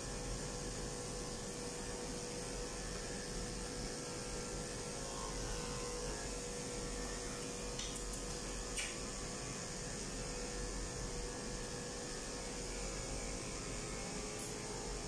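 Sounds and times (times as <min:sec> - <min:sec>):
faint short clicks: 0:07.8 - 0:09.0.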